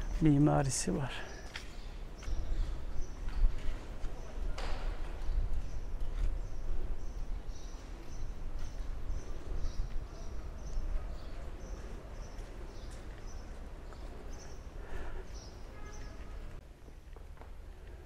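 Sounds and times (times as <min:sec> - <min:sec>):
small birds chirping: 0:00.0 - 0:16.5
footsteps on stone paving: 0:00.0 - 0:18.0
wind rumble on microphone: 0:02.0 - 0:11.5.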